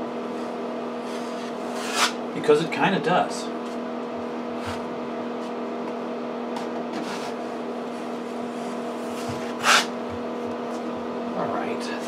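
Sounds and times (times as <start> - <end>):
steady low hum: 0.0 - 12.0
knife scraping compound on wall: 1.1 - 2.2, 9.2 - 9.9.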